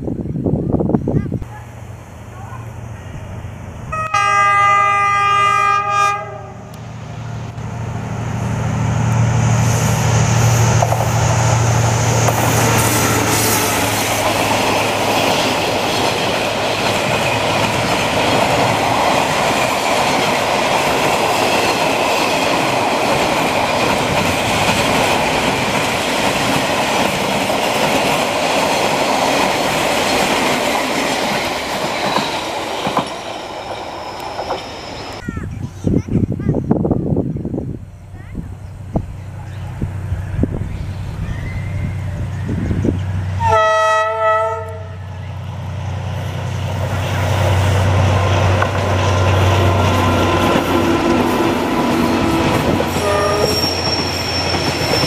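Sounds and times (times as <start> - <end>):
locomotive engine humming: 0.2 - 36.4, 37.1 - 55.0
locomotive horn blast: 3.9 - 6.8, 43.4 - 45.1, 49.1 - 55.0
train wheels rolling on rails: 6.7 - 35.2, 44.7 - 55.0
clickety-clack over rail joints: 10.8 - 11.2, 14.2 - 34.7, 46.6 - 55.0.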